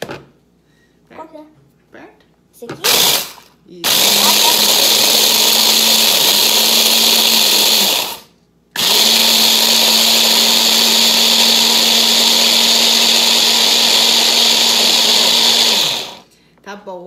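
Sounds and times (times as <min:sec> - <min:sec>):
hand blender crushing biscuits: 0:02.8 - 0:16.3.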